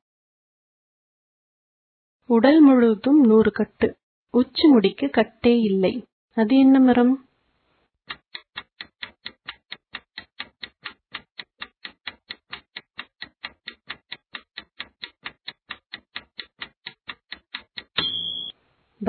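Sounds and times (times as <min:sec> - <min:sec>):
clock-like timer ticking: 0:08.1 - 0:18.5
short buzzer tone: 0:18.0 - 0:18.5.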